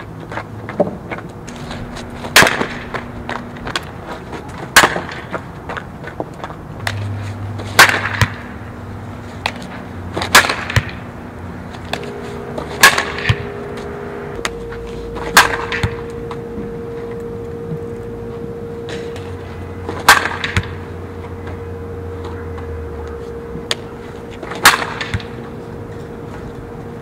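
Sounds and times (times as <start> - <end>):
bat hitting softball: 2.3 - 2.8, 4.7 - 5.3, 7.7 - 8.6, 10.2 - 11.0, 12.0 - 13.4, 15.2 - 16.0, 19.9 - 20.8, 24.5 - 25.4.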